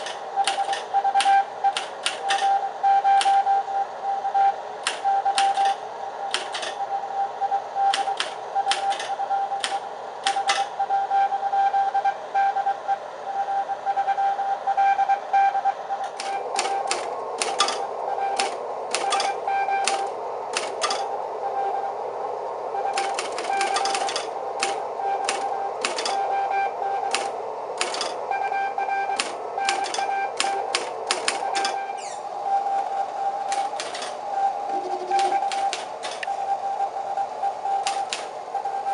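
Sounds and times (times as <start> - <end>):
typewriter keys clacking: 0.0 - 0.9, 1.7 - 2.5, 4.8 - 6.8, 7.9 - 10.7, 16.1 - 17.8, 18.4 - 21.1, 23.0 - 26.2, 27.1 - 28.2, 29.2 - 31.8, 33.5 - 34.2, 34.8 - 36.3, 37.8 - 38.3
morse code tone: 0.0 - 22.0, 22.7 - 38.9.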